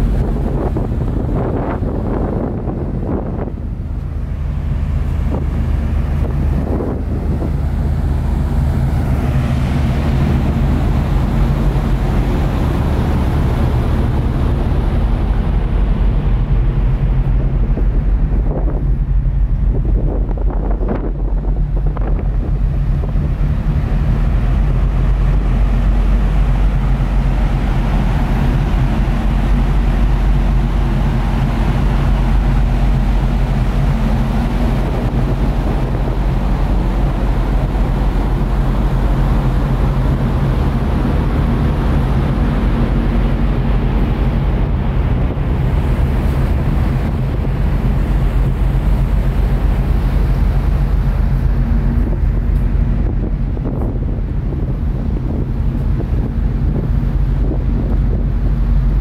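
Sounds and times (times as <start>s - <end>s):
ferry engines droning: 0.0s - 59.0s
sea noise rushing: 0.0s - 59.0s
wind buffeting microphone: 0.0s - 59.0s.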